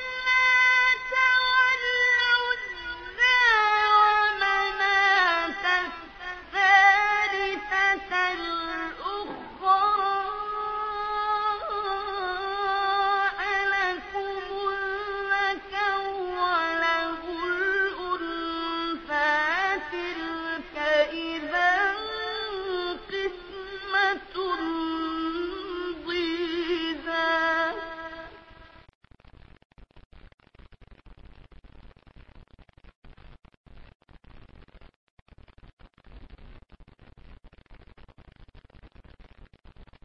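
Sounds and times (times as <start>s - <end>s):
young person chanting: 0.0s - 28.3s.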